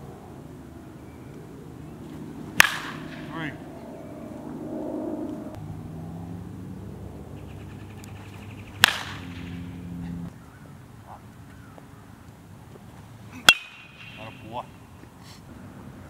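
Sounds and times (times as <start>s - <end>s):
low steady hum: 0.0s - 16.0s
baseball bat striking ball: 2.5s - 3.6s, 7.4s - 10.2s, 13.4s - 14.7s.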